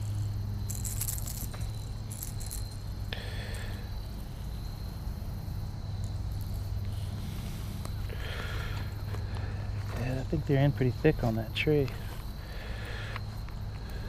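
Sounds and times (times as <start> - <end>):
hook and lure jingling: 0.0 - 3.1.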